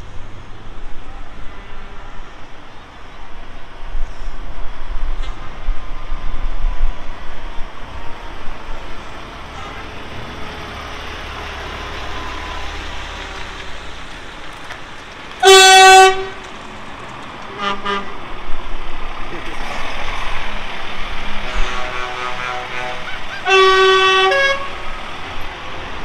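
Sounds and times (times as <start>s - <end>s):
lorry horn blast: 15.4s - 16.4s, 17.5s - 18.2s, 21.4s - 24.8s.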